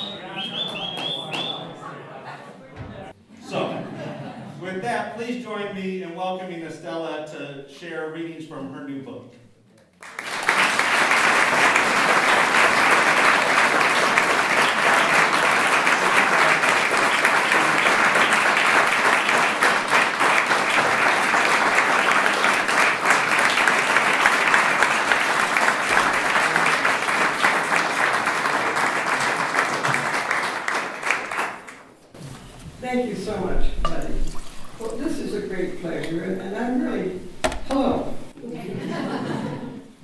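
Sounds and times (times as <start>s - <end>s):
audience applauding: 0.0s - 1.6s, 10.0s - 31.9s.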